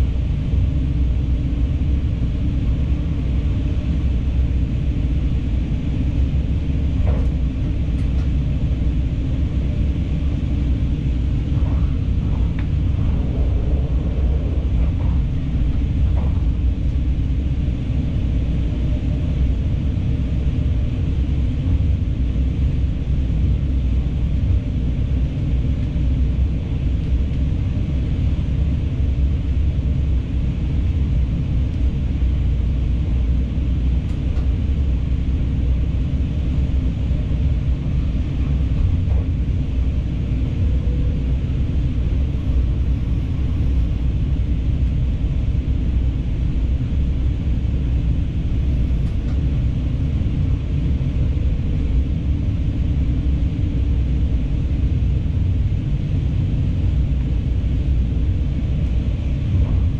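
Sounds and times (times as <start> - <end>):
train rumbling on rails: 0.0 - 59.9.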